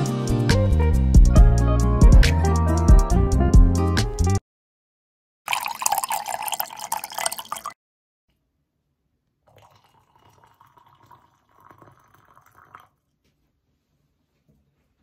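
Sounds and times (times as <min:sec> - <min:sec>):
water pouring into metal pitcher: 0:05.5 - 0:07.8, 0:09.5 - 0:13.0.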